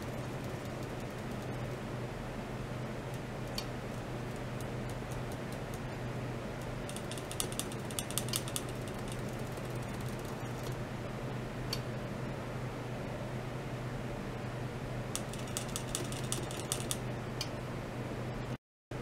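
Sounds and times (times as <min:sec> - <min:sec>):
small dry clicks: 0:00.0 - 0:01.7, 0:06.6 - 0:10.8, 0:15.2 - 0:17.5
electronics humming: 0:00.0 - 0:19.0.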